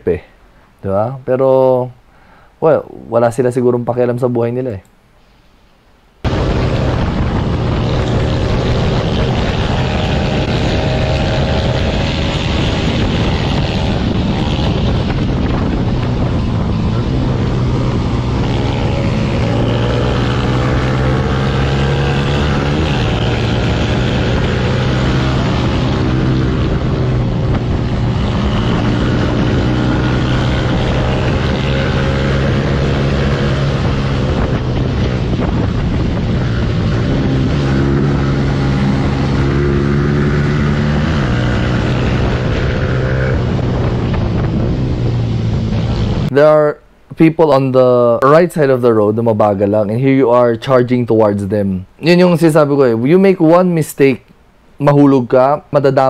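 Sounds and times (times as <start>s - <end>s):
motorcycle engine running: 6.2s - 46.3s
wind rush on microphone: 6.2s - 46.3s.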